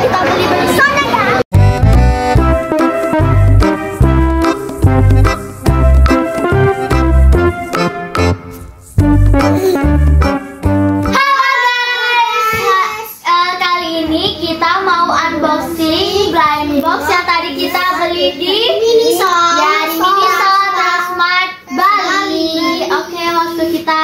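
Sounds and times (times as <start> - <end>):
keyboard music: 1.5 - 11.5
child singing: 11.1 - 24.0.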